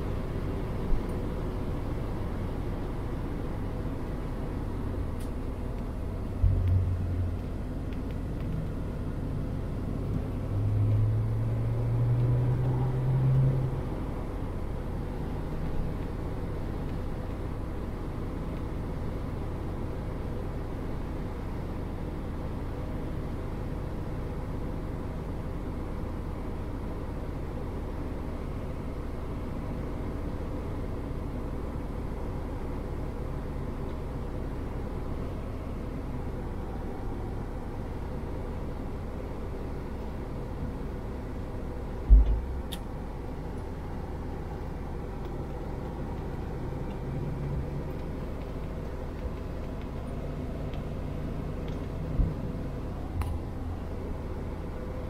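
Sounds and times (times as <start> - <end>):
car engine running: 0.0 - 12.8, 26.7 - 55.0.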